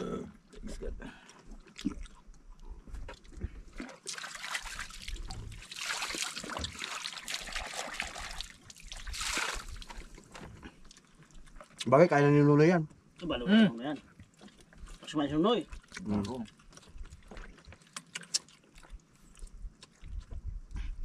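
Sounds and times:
water splashing against boat hull: 0:03.1 - 0:10.9.

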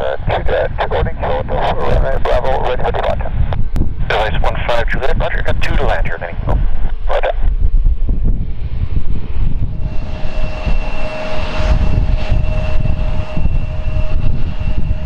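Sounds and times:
jet engines whining: 0:08.4 - 0:15.0
low engine rumble: 0:09.3 - 0:15.0.

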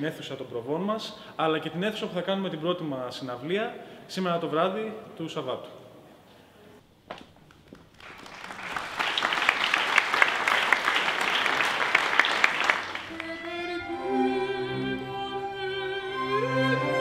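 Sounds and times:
audience applauding: 0:07.5 - 0:13.6
string orchestra playing: 0:13.1 - 0:17.0
woman singing: 0:13.1 - 0:17.0.

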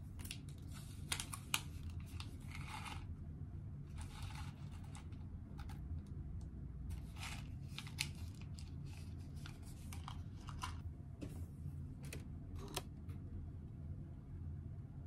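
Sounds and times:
low room hum: 0:00.0 - 0:15.0
packet crinkling and rustling: 0:06.9 - 0:10.8.

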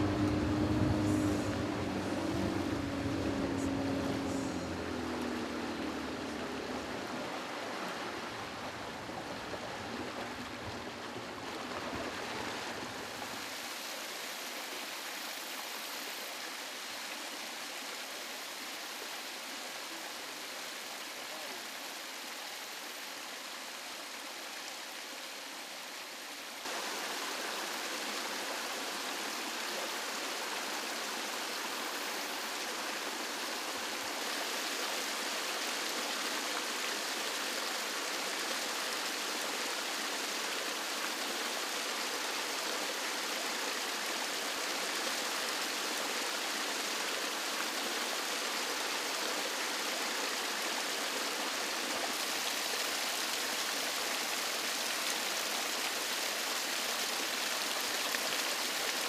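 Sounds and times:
stream water splashing over rocks: 0:00.0 - 0:59.0.

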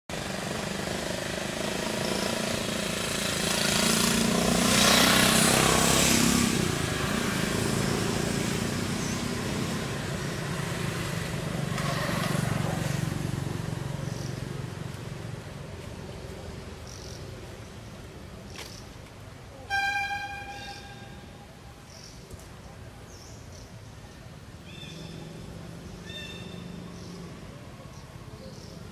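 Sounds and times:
vehicle engine running: 0:00.1 - 0:17.2.

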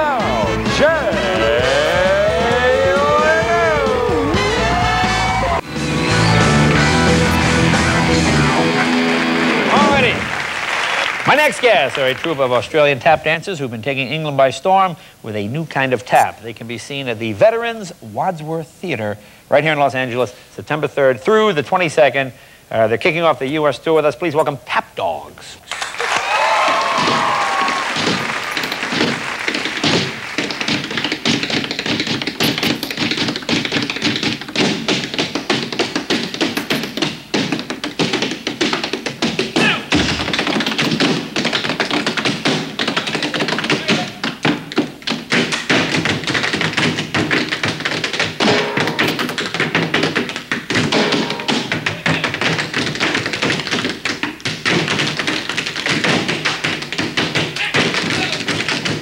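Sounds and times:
live music: 0:00.0 - 0:11.4
tap dancing on wooden stage: 0:08.9 - 0:13.4, 0:25.7 - 0:59.0.

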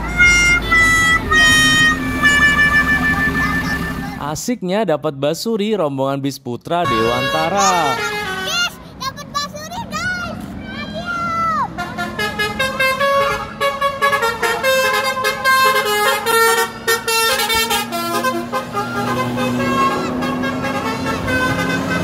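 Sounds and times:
musical horn playing a tune: 0:00.0 - 0:04.2, 0:06.8 - 0:08.6, 0:11.8 - 0:22.0
person shouting: 0:06.9 - 0:08.7.

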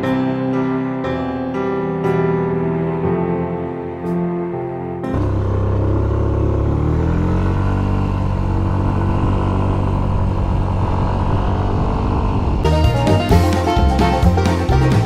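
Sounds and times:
scooter engine revving: 0:05.1 - 0:12.6.

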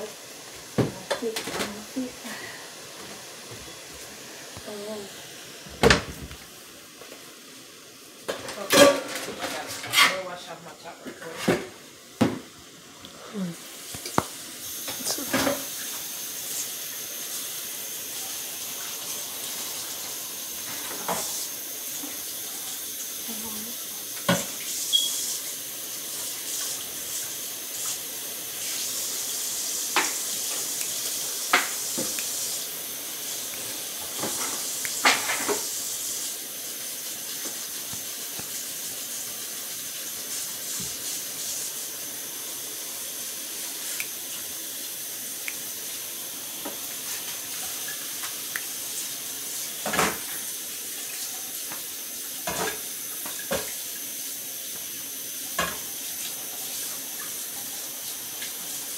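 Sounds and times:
steady watery hiss: 0:00.0 - 0:58.9
pots and utensils clinking: 0:08.2 - 0:10.4, 0:14.8 - 0:15.8, 0:33.6 - 0:35.8, 0:52.4 - 0:53.8.

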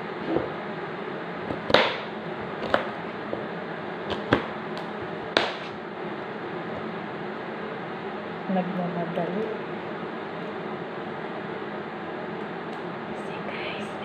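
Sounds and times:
steady background hum: 0:00.0 - 0:14.0
knife chopping on cutting board: 0:01.5 - 0:02.9, 0:05.3 - 0:05.8.

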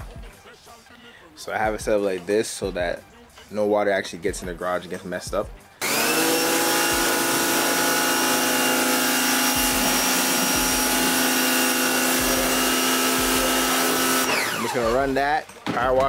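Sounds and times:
pressure washer pump whining: 0:05.8 - 0:15.2.

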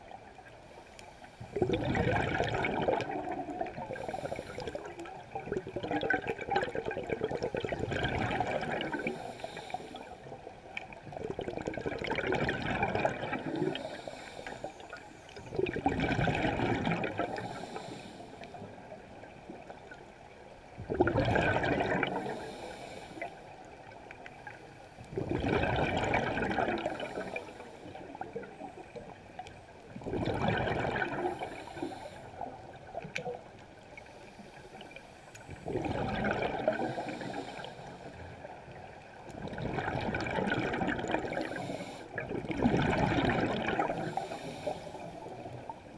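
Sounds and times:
underwater bubbling: 0:00.0 - 0:45.9
breathing hiss: 0:03.9 - 0:05.0, 0:09.0 - 0:10.2, 0:13.5 - 0:15.0, 0:17.2 - 0:18.6, 0:22.2 - 0:23.5, 0:26.9 - 0:28.1, 0:31.3 - 0:32.5, 0:36.7 - 0:38.3, 0:41.4 - 0:42.2, 0:43.9 - 0:45.3.

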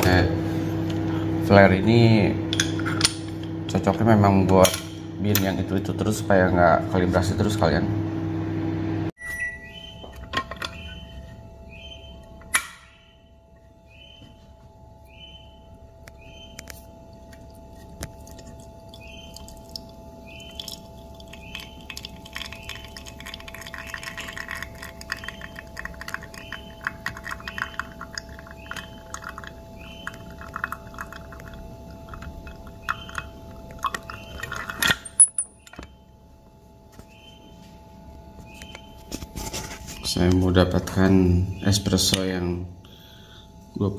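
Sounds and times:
espresso trickling into cup: 0:16.6 - 0:34.8.

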